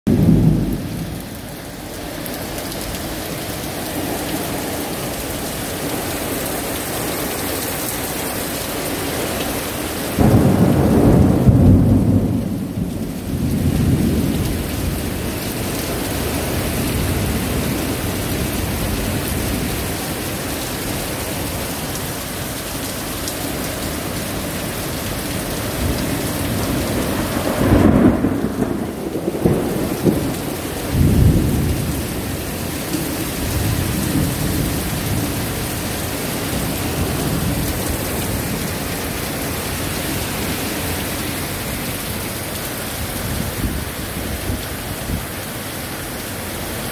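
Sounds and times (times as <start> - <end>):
thunder rumbling: 0.1 - 2.2, 10.1 - 45.3
heavy rain: 0.1 - 46.9.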